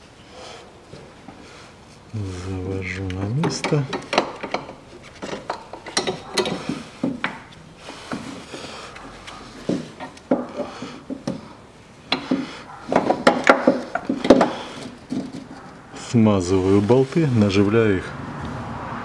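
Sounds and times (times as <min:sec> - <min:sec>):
metal clicks clunks and scraping: 0:02.8 - 0:16.1.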